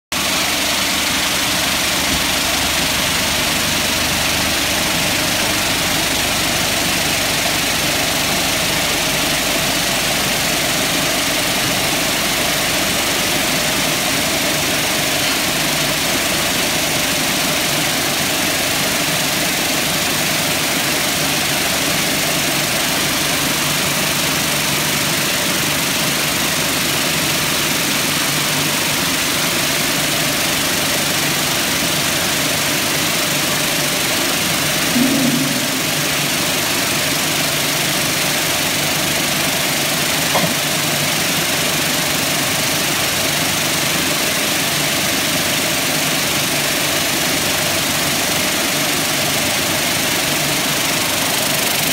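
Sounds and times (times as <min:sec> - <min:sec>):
low machine hum: 0:33.8 - 0:37.3.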